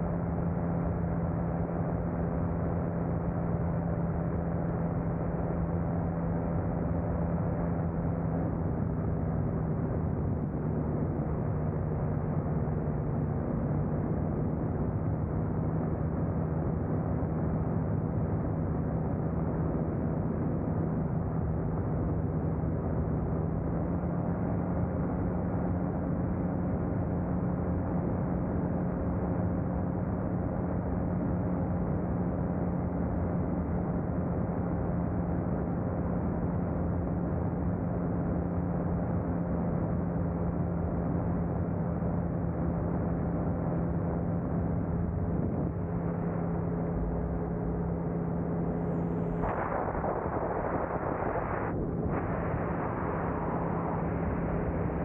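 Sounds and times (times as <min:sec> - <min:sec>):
aircraft engine droning: 0:00.0 - 0:55.0
wind rushing over microphone: 0:43.3 - 0:55.0.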